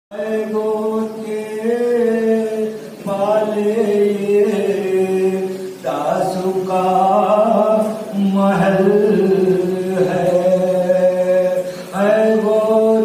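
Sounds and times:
men chanting through microphones: 0:00.2 - 0:13.0.

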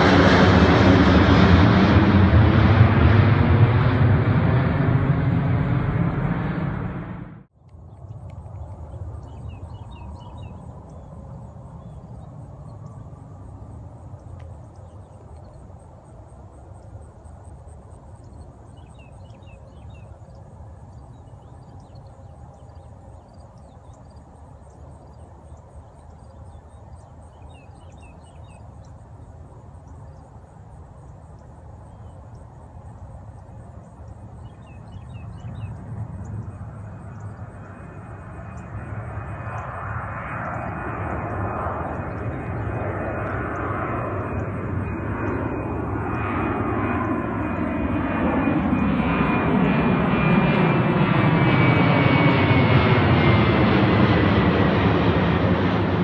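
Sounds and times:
distant jet engines rumbling: 0:00.0 - 0:56.0.

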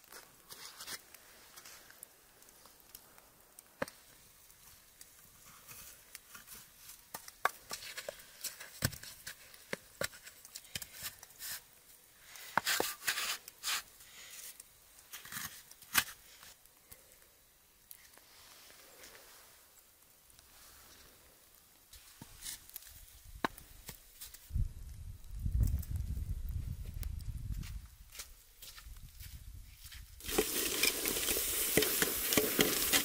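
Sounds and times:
snow crunching and scraping: 0:00.1 - 0:02.0, 0:27.5 - 0:33.0
bricks knocking on icy ground: 0:30.2 - 0:33.0.

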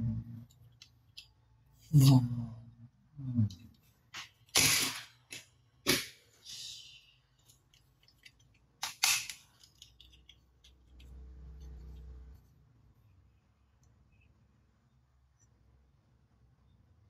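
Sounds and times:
plastic toys clacking: 0:04.1 - 0:06.2, 0:07.3 - 0:12.1.

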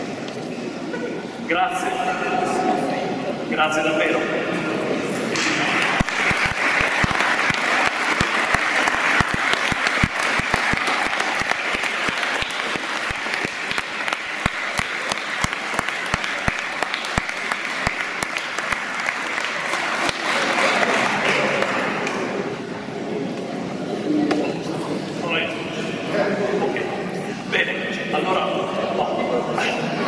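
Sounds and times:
crowd clapping: 0:05.3 - 0:22.5.

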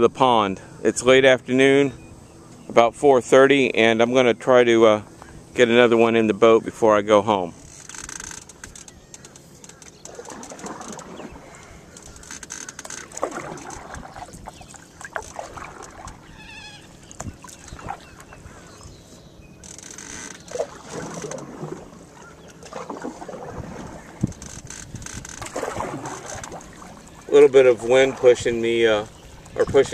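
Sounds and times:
waterbird calling: 0:00.0 - 0:29.9
paddle strokes in water: 0:07.6 - 0:29.9
paddle knocking against boat: 0:08.1 - 0:16.3, 0:17.0 - 0:18.5, 0:19.6 - 0:28.6.

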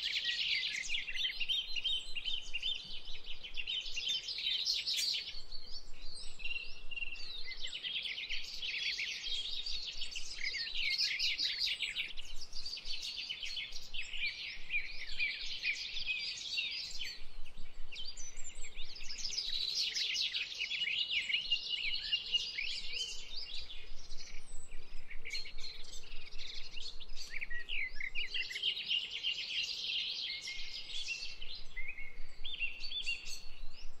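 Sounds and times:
small birds chirping and twittering: 0:00.0 - 0:34.0.

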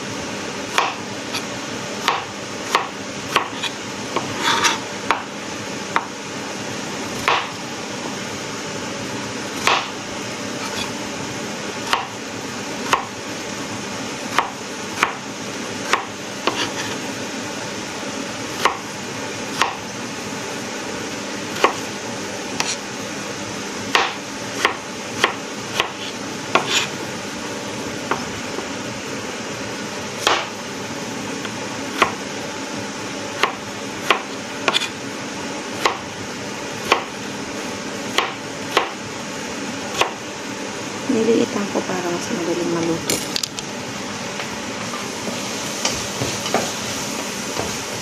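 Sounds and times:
knife chopping on cutting board: 0:00.7 - 0:05.3, 0:05.9 - 0:06.1, 0:07.2 - 0:07.6, 0:09.6 - 0:10.0, 0:10.6 - 0:11.0, 0:11.8 - 0:12.2, 0:12.8 - 0:13.2, 0:14.3 - 0:15.2, 0:15.9 - 0:17.0, 0:18.6 - 0:18.9, 0:19.5 - 0:19.8, 0:21.5 - 0:21.9, 0:22.5 - 0:22.8, 0:23.9 - 0:26.9, 0:28.0 - 0:28.7, 0:30.2 - 0:30.6, 0:31.4 - 0:32.2, 0:33.4 - 0:35.0, 0:35.8 - 0:36.0, 0:36.8 - 0:37.1, 0:38.1 - 0:39.0, 0:39.9 - 0:40.2.

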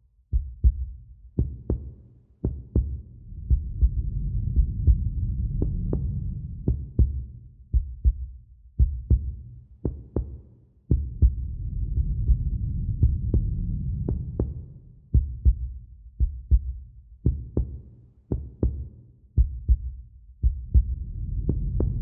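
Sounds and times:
slow heartbeat thumps: 0:00.3 - 0:22.0
low rumble: 0:03.2 - 0:07.1, 0:11.1 - 0:15.5, 0:20.6 - 0:22.0.

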